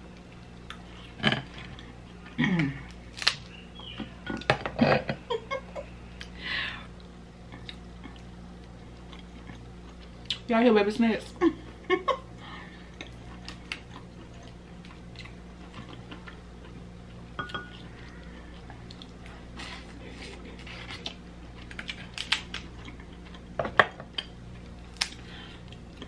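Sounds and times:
faint low hum: 0.0s - 26.0s
crab shell cracking: 3.1s - 3.5s, 21.7s - 22.8s, 24.9s - 25.2s.

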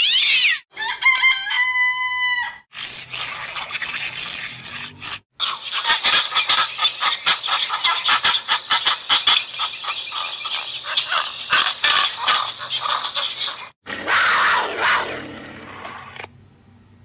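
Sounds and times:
pelicans clicking calls: 5.7s - 15.1s
puma call: 11.8s - 16.0s.

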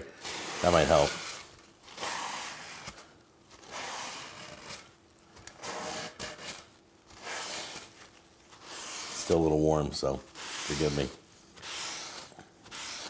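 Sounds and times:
paper towel rubbing on grill plate: 0.2s - 2.8s, 7.1s - 13.0s.

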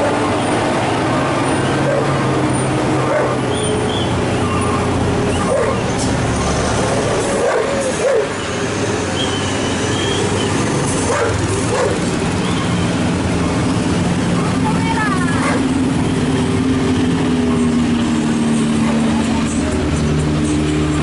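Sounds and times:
truck and car engines: 0.0s - 21.0s
dog barking: 1.8s - 2.2s, 3.0s - 3.4s, 5.4s - 5.8s, 7.4s - 8.4s, 11.1s - 12.1s, 15.4s - 15.7s.

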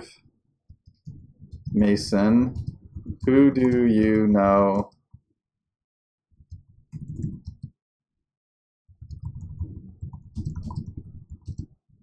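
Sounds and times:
computer keyboard typing: 1.0s - 4.9s, 6.4s - 7.7s, 9.0s - 11.7s.

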